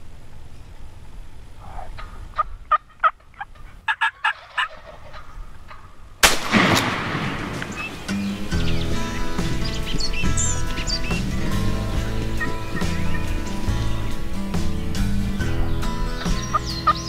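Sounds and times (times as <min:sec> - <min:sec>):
wild turkey calls: 0:00.0 - 0:17.0
shotgun blast: 0:06.2 - 0:09.0.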